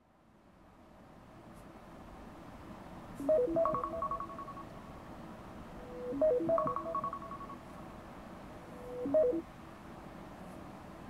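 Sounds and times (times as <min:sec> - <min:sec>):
phone alarm melody: 0:03.2 - 0:04.7, 0:06.1 - 0:07.6, 0:09.0 - 0:09.4.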